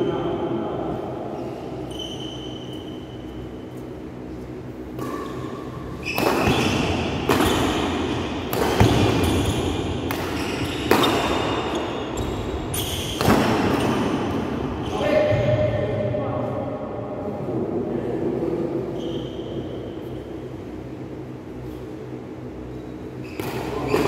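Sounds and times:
shoes squeaking on court floor: 1.3 - 15.0, 22.7 - 24.0
rackets hitting shuttlecock: 4.9 - 11.7, 13.0 - 14.5, 23.4 - 24.0.

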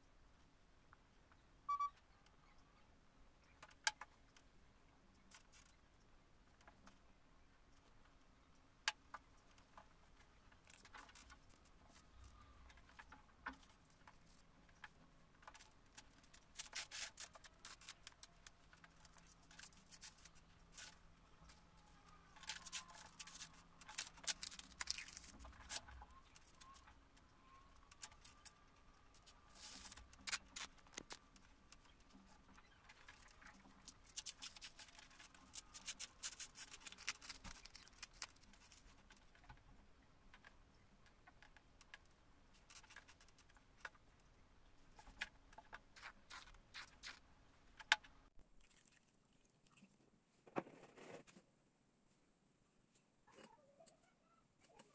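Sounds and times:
pads crinkling and tearing: 22.0 - 26.8, 33.0 - 39.3.

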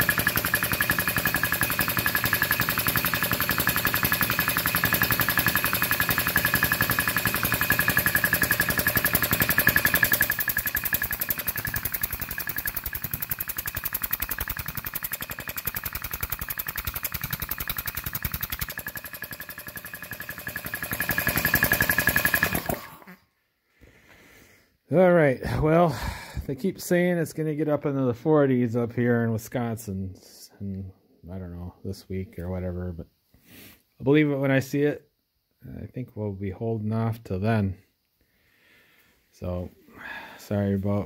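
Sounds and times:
air compressor pump clattering: 0.0 - 23.1.

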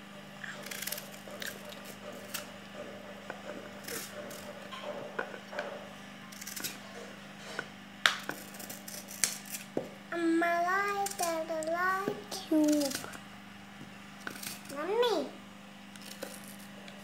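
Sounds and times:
steady low hum: 0.0 - 17.0
knife scraping and cutting: 0.5 - 2.5, 3.4 - 9.8, 12.6 - 13.2, 14.2 - 14.8, 16.0 - 17.0.

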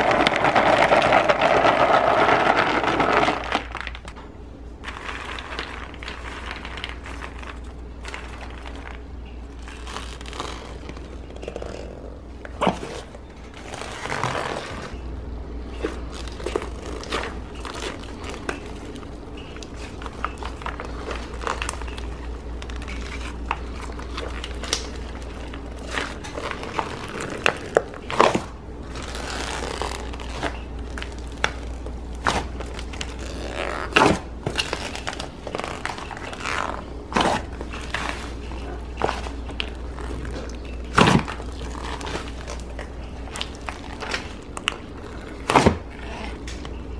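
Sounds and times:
steady low hum: 0.0 - 46.9
slime squelching and popping: 15.6 - 46.8.

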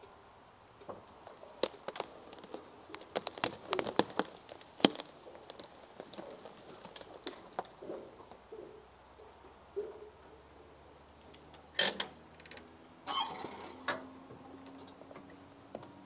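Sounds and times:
branches and twigs snapping: 1.0 - 8.4.

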